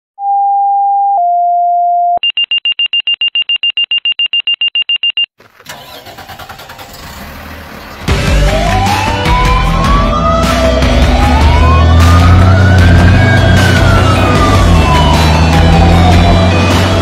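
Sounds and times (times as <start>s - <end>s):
pager two-tone alert: 2.2s - 5.3s
vehicle engine: 5.4s - 17.0s
siren: 8.5s - 17.0s.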